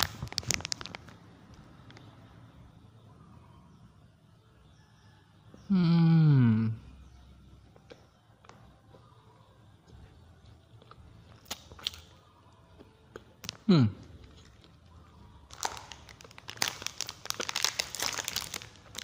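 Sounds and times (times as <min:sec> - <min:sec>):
plastic wrapper crinkling: 0:00.0 - 0:01.2, 0:15.5 - 0:19.0.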